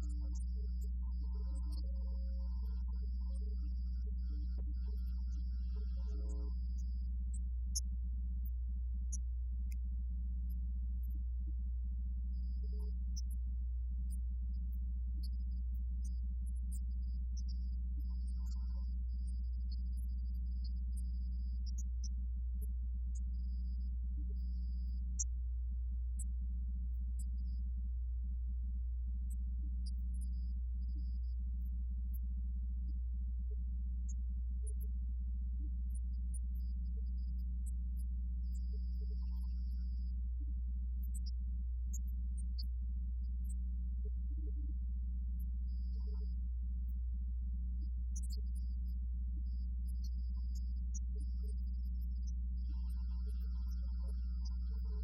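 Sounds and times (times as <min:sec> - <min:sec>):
low electrical hum: 0:00.0 - 0:55.0
faint buzz: 0:47.7 - 0:55.0.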